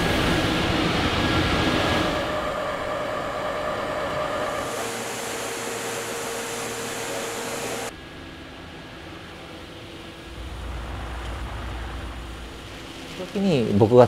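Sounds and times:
loud steady steam hiss: 0:00.0 - 0:07.9, 0:09.9 - 0:14.0
machinery hum: 0:00.0 - 0:14.0
low rumble: 0:09.9 - 0:13.8.

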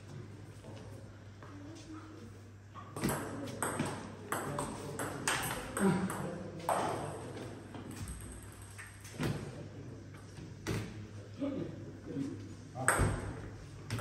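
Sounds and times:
ping-pong ball hits: 0:03.0 - 0:08.9, 0:12.8 - 0:14.0.

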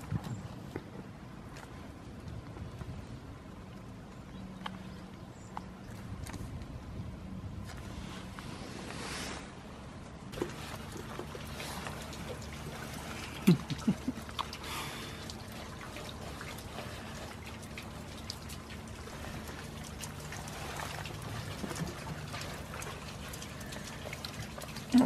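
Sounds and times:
rain falling and dripping: 0:10.3 - 0:25.0.

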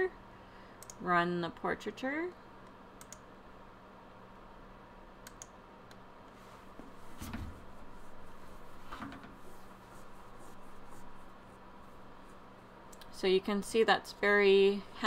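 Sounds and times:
faint steady hum: 0:00.0 - 0:15.0
computer mouse clicking: 0:00.8 - 0:01.0, 0:02.6 - 0:03.2, 0:05.2 - 0:06.0.

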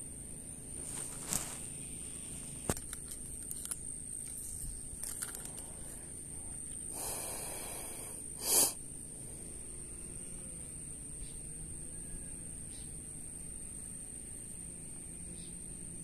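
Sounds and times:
steady high-pitched whine: 0:00.0 - 0:16.0
fishing reel clicks and handling: 0:05.0 - 0:05.6.

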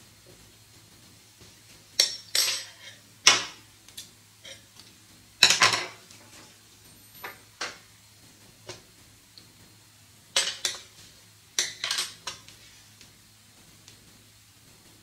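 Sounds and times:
metal items clinking on table: 0:02.0 - 0:03.6, 0:05.4 - 0:07.8, 0:11.6 - 0:12.4.

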